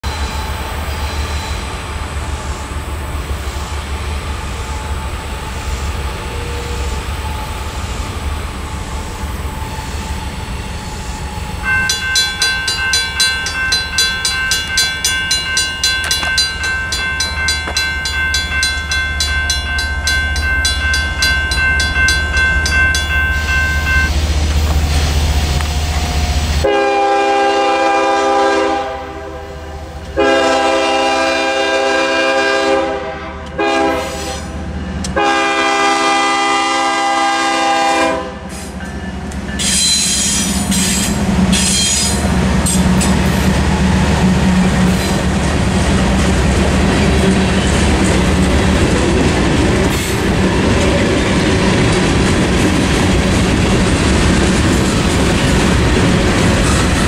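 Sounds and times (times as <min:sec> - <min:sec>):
railroad crossing bells ringing: 0:11.5 - 0:25.6, 0:38.8 - 0:43.6
locomotive horn: 0:26.6 - 0:38.6.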